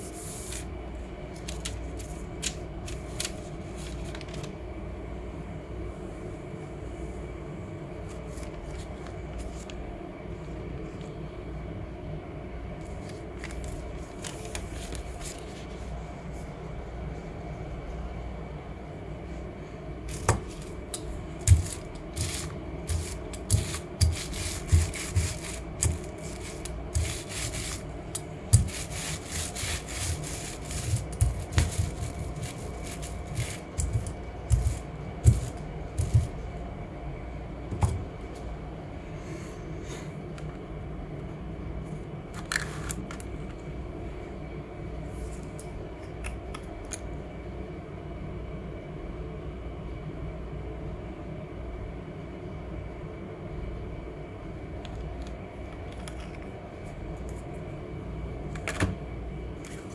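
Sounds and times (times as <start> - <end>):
low room hum: 0.0 - 59.9
rubber roller rasping on paper: 21.5 - 27.9, 28.5 - 36.3.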